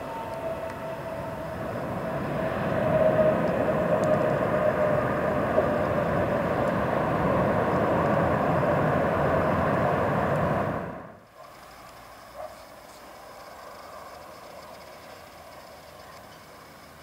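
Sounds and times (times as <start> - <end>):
jet engines running at high power: 0.0 - 17.0.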